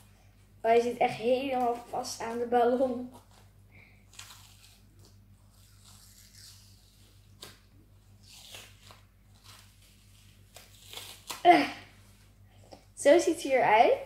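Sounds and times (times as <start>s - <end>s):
rubber mould ripping from foam: 4.1s - 11.6s.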